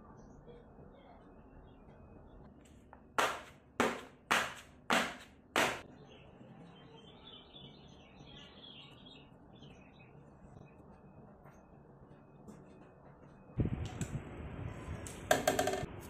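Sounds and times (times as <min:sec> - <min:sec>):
metal pan knocked on surface: 0:15.3 - 0:15.9.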